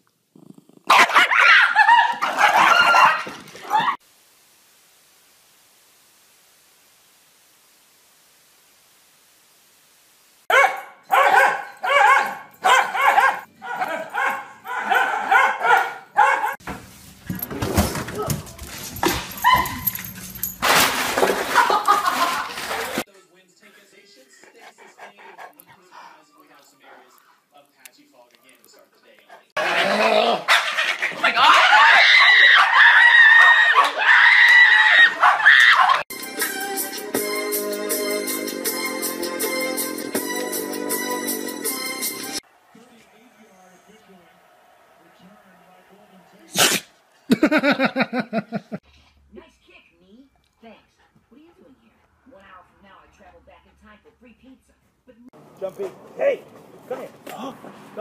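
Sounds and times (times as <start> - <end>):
dog barking: 0.9 - 4.0, 10.5 - 16.6, 19.4 - 19.9, 29.6 - 34.2, 35.1 - 36.0
faint hiss: 4.0 - 10.5
high-pitched screams: 31.4 - 36.0
organ music: 36.1 - 42.4.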